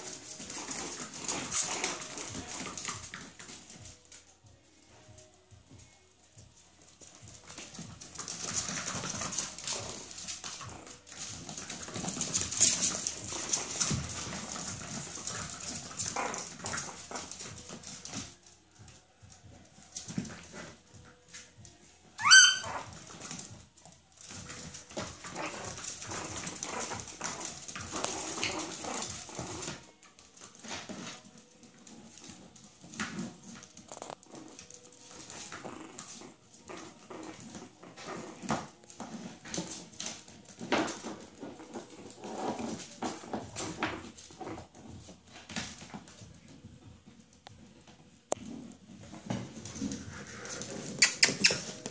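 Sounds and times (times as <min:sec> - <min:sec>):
puppies paws scrabbling on floor: 0:00.0 - 0:51.9
puppy yelp: 0:22.2 - 0:22.9.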